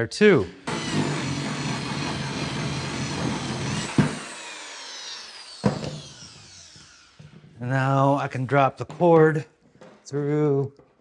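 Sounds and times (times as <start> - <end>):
power tool motor winding down: 0.6 - 7.5.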